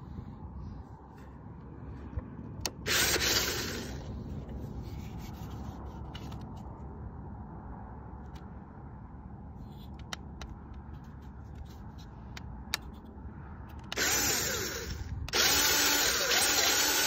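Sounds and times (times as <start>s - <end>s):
low steady rumble: 0.0s - 17.0s
rubbing scraping noise: 3.8s - 6.7s.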